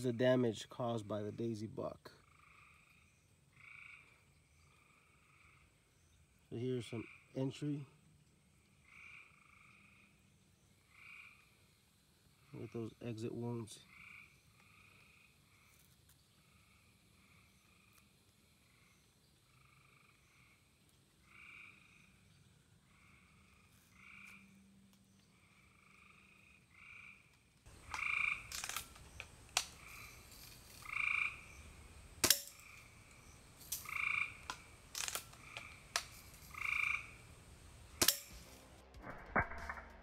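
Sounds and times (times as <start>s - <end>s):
frogs croaking: 0.1s - 38.2s
air rifle firing: 32.2s - 32.6s
pellets hitting target: 38.0s - 40.0s.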